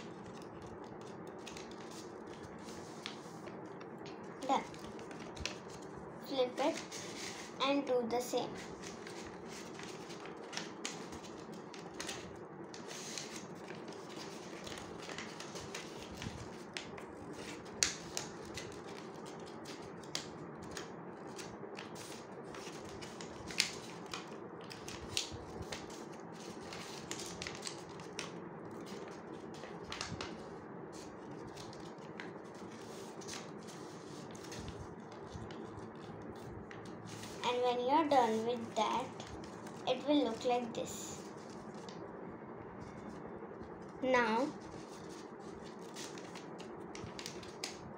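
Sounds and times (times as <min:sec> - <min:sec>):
paper crackles and taps: 0:00.0 - 0:05.8, 0:08.4 - 0:42.0, 0:44.1 - 0:47.8
paper rustling and crinkling: 0:00.0 - 0:42.0, 0:42.8 - 0:47.9
steady low hum: 0:00.0 - 0:47.9.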